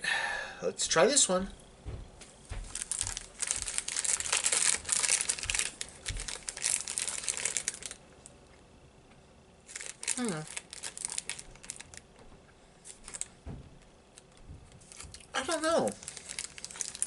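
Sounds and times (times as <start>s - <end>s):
snack wrapper crinkling: 2.7s - 8.3s, 9.6s - 12.1s, 12.9s - 13.3s, 14.1s - 17.0s.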